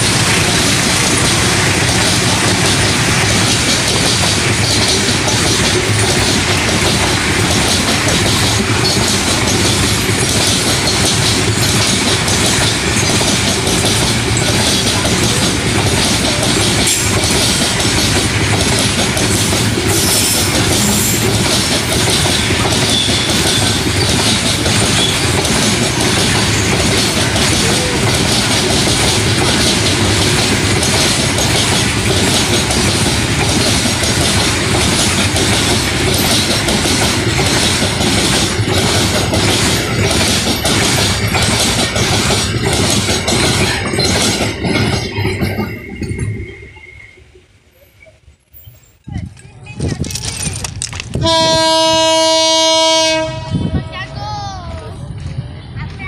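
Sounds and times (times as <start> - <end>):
train wheels clattering on rail joints: 0.0 - 53.8.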